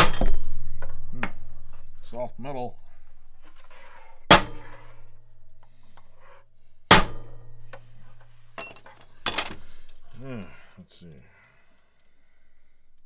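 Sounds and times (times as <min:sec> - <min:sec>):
hammer striking steel punch: 0:00.0 - 0:01.5, 0:04.3 - 0:05.1, 0:06.9 - 0:08.1.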